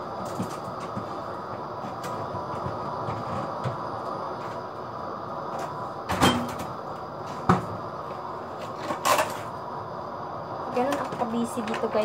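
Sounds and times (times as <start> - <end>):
refrigerator door shutting: 6.1 - 6.7.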